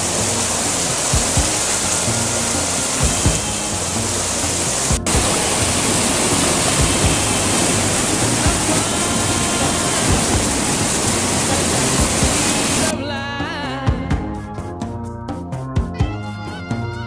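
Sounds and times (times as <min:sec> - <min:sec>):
stream water rushing over boulders: 0:00.0 - 0:12.9.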